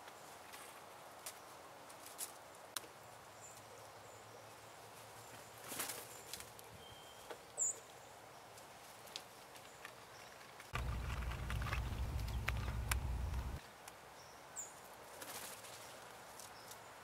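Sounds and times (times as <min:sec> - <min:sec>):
bird wings flapping: 0:05.6 - 0:06.6, 0:10.7 - 0:13.6, 0:15.1 - 0:16.0
faint clicks: 0:10.7 - 0:13.6.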